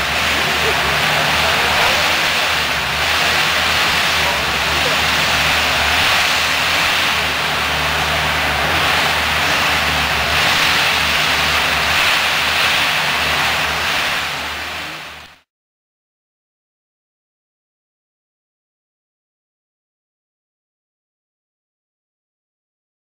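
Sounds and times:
loud hydraulic hiss: 0:00.0 - 0:15.4
diesel engine hum: 0:00.0 - 0:15.5.

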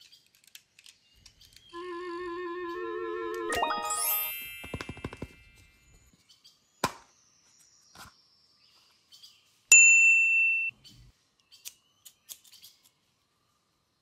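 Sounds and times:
light clicks handling toys: 0:00.0 - 0:01.7
bright ding: 0:03.6 - 0:05.6.

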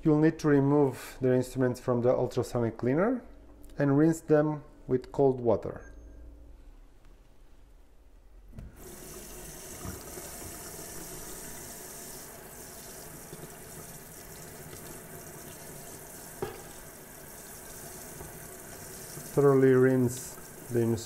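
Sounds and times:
tap water running into sink: 0:08.6 - 0:21.0.

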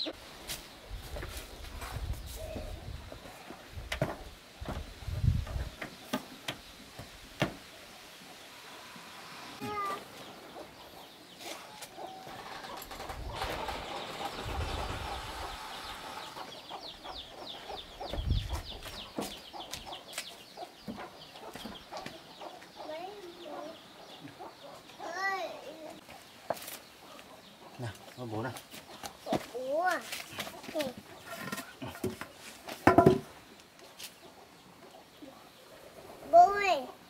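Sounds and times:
farmyard background: 0:00.0 - 0:37.0
sharp knocks and clatter: 0:31.3 - 0:33.3.

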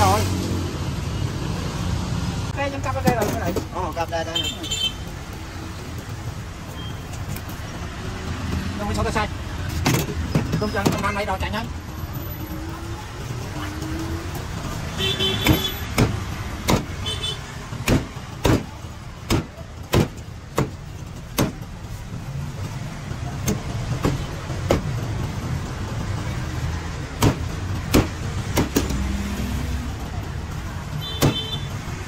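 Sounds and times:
cleaver chopping on wooden block: 0:15.4 - 0:16.9, 0:17.8 - 0:18.7, 0:19.3 - 0:21.6, 0:27.2 - 0:29.0.

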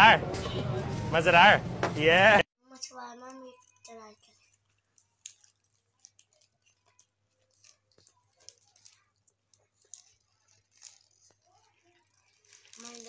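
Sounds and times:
small ticks and rustles: 0:02.8 - 0:13.0
child chewing food: 0:03.3 - 0:13.0.

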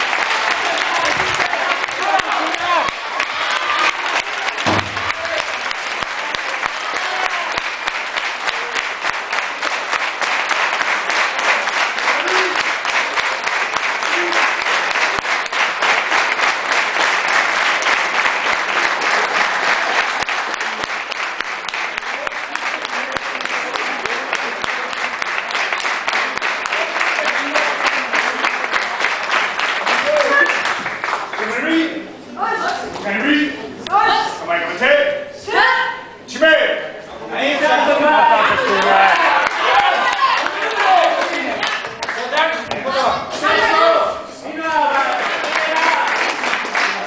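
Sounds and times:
audience applauding: 0:00.0 - 0:31.6, 0:37.9 - 0:44.0, 0:44.6 - 0:47.0
voices in crowd: 0:00.0 - 0:47.0.

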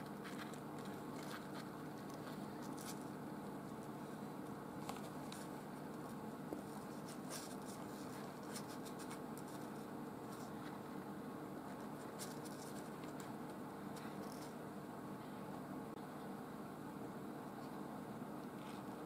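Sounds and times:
kittens scratching on cardboard: 0:00.0 - 0:11.0, 0:11.6 - 0:14.6
steady low hum: 0:00.0 - 0:19.0.

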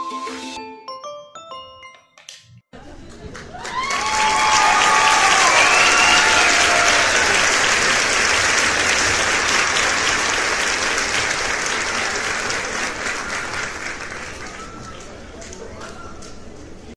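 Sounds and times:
crowd applause: 0:02.9 - 0:15.5.

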